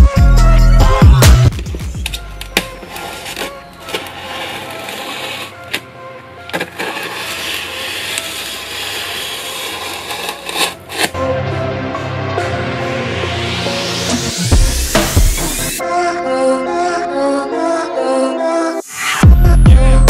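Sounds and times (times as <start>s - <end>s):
electronic music: 0.0s - 5.7s, 11.3s - 20.0s.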